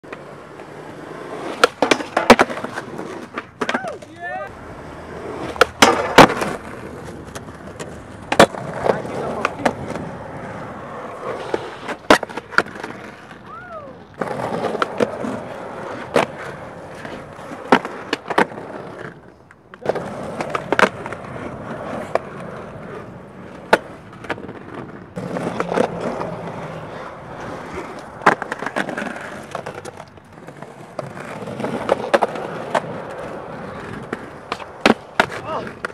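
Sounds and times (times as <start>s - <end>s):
skateboard tail popping and landing: 0.0s - 4.2s, 4.8s - 35.9s
skateboard wheels rolling on concrete: 0.0s - 35.9s.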